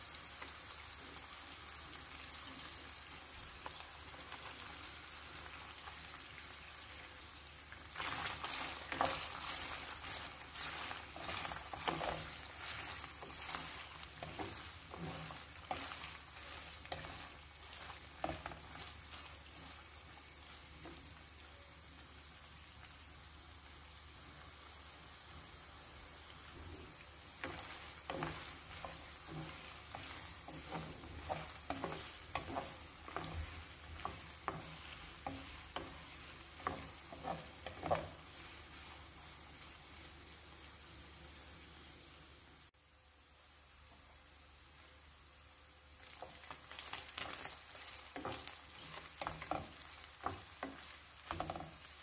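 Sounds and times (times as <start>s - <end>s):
food sizzling in oil: 0.0s - 52.0s
wooden spoon scraping pot: 8.0s - 19.8s, 27.4s - 39.0s, 47.2s - 52.0s.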